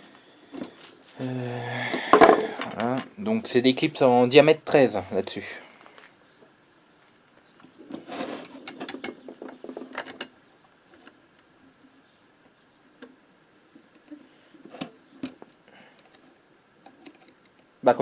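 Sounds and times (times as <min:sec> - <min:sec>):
small metal clicks and rattling: 0:07.6 - 0:10.4.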